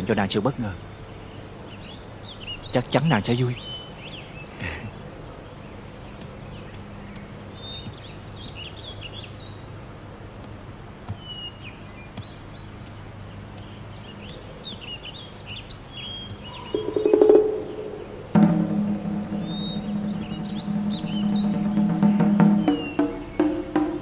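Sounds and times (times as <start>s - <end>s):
birds chirping: 0.0s - 24.0s
low hum: 16.5s - 22.7s.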